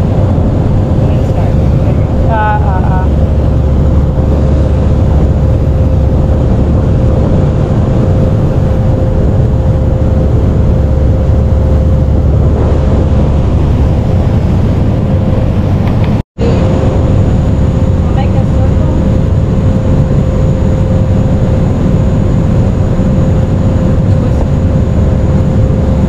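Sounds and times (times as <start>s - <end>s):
constant hum: 0.0s - 26.0s
yacht engines rumbling: 0.0s - 26.0s.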